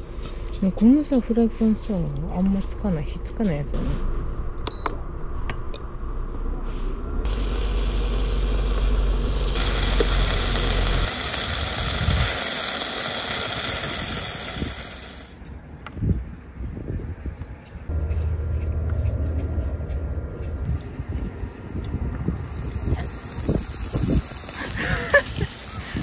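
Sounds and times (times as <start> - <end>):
meat sizzling in a frying pan: 9.6 - 15.4, 22.4 - 26.0
low rumble: 17.9 - 25.2.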